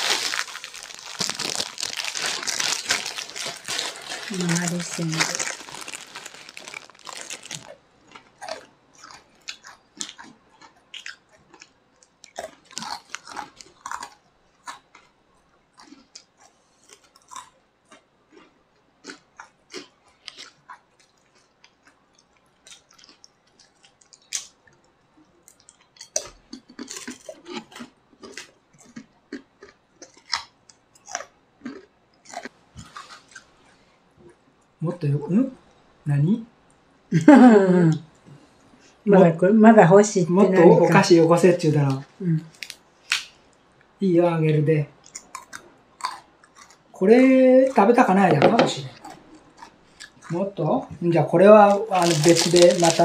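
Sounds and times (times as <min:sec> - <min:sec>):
people crunching crisp snacks: 0:00.0 - 0:33.6, 0:40.6 - 0:43.4, 0:45.0 - 0:50.5, 0:51.4 - 0:53.0.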